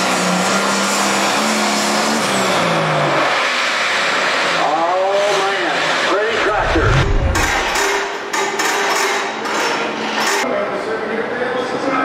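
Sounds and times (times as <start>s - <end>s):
engine running at full throttle: 6.3s - 7.9s.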